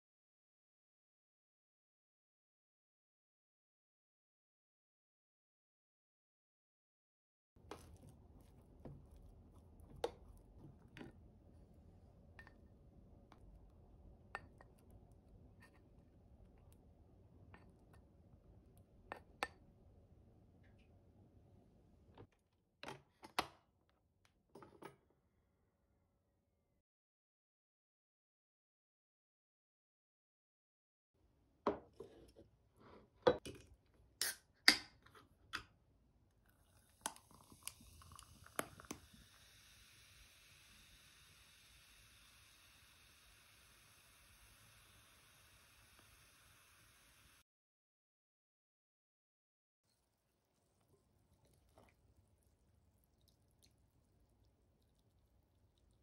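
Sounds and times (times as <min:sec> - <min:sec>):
drink pouring into glass of ice: 0:36.5 - 0:41.4.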